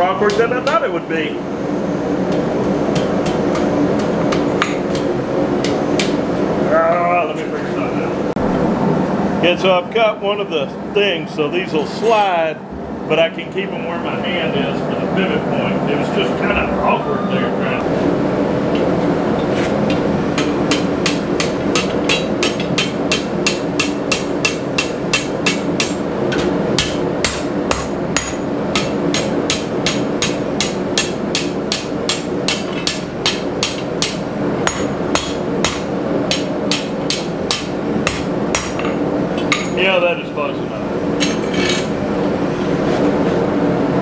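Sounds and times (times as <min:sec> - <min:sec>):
steady background hum: 0:00.0 - 0:44.0
hammer striking metal on anvil: 0:20.4 - 0:39.8.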